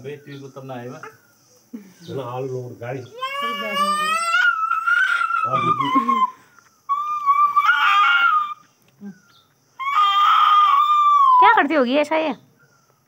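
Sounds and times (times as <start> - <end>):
dog whining: 3.2 - 8.6, 9.8 - 11.6.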